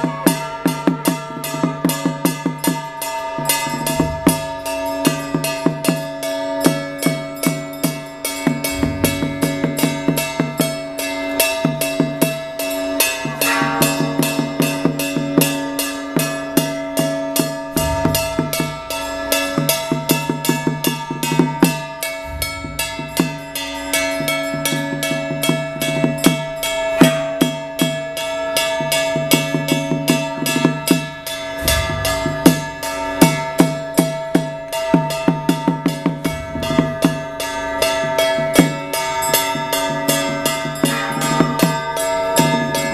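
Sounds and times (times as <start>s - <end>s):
hand gong ringing: 0.0s - 42.9s
deep drum strokes: 3.6s - 6.3s, 8.5s - 11.1s, 13.0s - 15.6s, 17.4s - 24.8s, 31.4s - 39.1s
drum beating rapidly: 8.5s - 11.0s, 17.5s - 25.1s, 30.7s - 39.0s.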